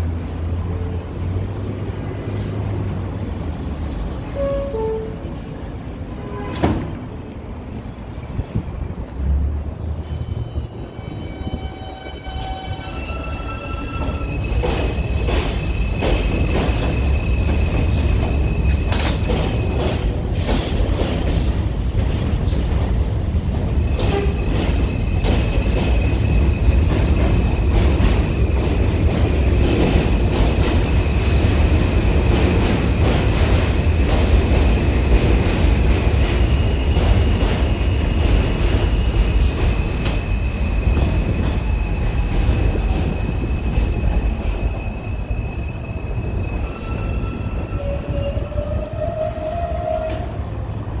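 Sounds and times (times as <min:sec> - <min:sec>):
train rumbling: 0:00.0 - 0:51.0
train wheels squealing: 0:07.7 - 0:28.6, 0:36.4 - 0:50.5.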